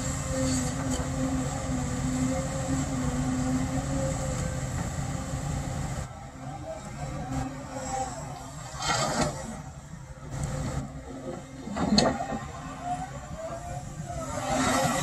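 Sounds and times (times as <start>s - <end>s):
excavator diesel engine running: 0.0s - 8.8s.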